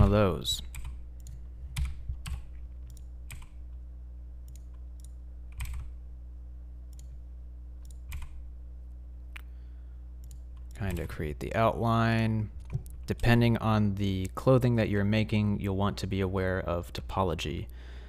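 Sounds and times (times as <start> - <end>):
keyboard and mouse clicks: 0.0 - 3.6, 4.5 - 5.9, 7.8 - 8.4, 10.2 - 11.2
steady low hum: 0.0 - 18.0.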